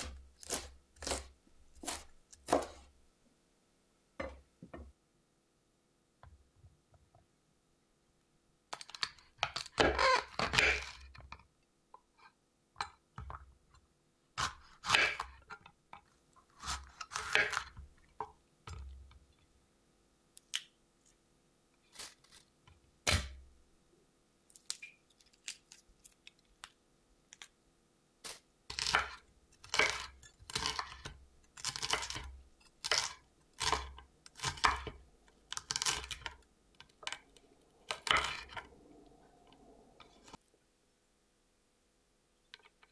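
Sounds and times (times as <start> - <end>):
knife cutting pepper crunching: 0.0 - 2.9, 16.6 - 17.8, 28.2 - 36.4.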